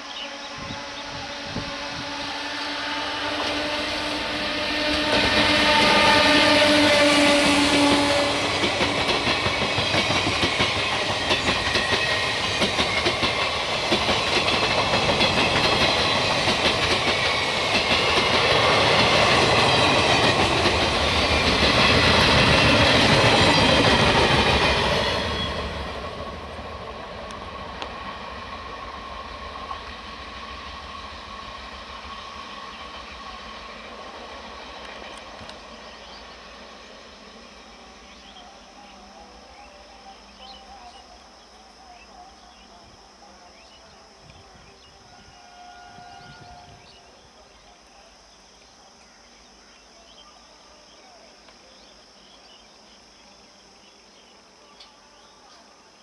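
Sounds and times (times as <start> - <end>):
locomotive steady tone: 0.0 - 56.0
train coaches clattering over rails: 4.8 - 25.5.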